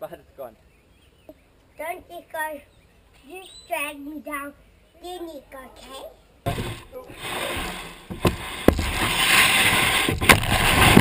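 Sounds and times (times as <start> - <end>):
kayak scraping over ground: 6.5 - 11.0
hull knocking on ground: 8.1 - 9.2.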